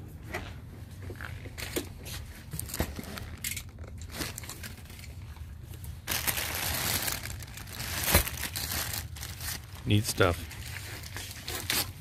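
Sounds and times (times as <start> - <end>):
plastic bags crinkling: 2.5 - 12.0.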